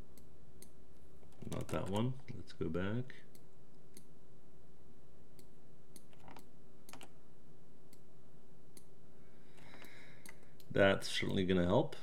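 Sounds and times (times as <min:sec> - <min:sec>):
faint steady hum: 0:00.0 - 0:12.0
mouse and keyboard clicks: 0:06.0 - 0:07.2.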